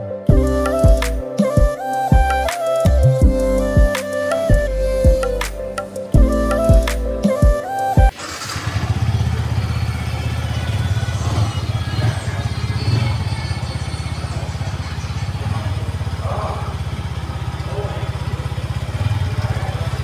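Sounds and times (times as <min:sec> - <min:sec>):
background music: 0:00.0 - 0:08.2
motorcycle engine idling: 0:08.2 - 0:20.0.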